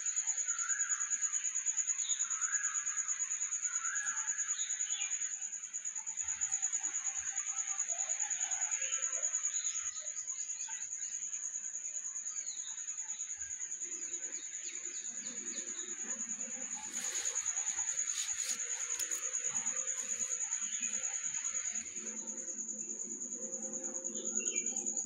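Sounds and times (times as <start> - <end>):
high insect trill: 0.0 - 25.0
scratchy rustles: 16.4 - 21.8.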